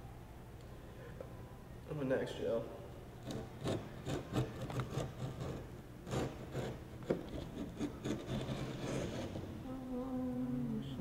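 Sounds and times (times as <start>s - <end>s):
fingers rubbing griptape: 3.2s - 9.5s.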